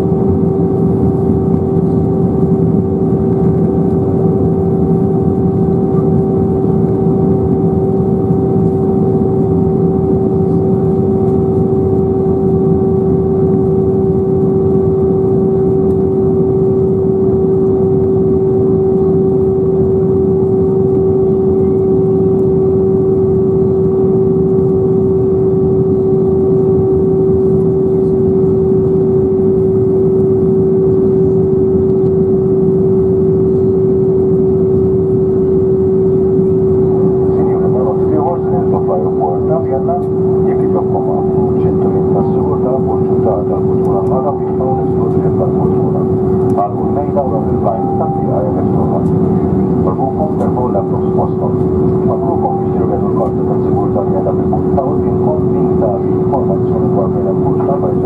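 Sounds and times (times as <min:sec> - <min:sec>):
airplane cabin engine hum: 0:00.0 - 0:58.0
steady high tone: 0:40.3 - 0:58.0.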